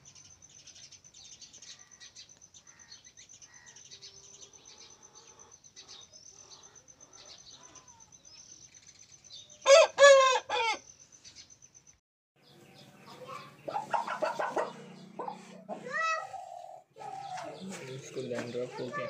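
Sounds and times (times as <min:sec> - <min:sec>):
small birds chirping: 0:00.0 - 0:19.0
rooster crowing: 0:09.6 - 0:10.8.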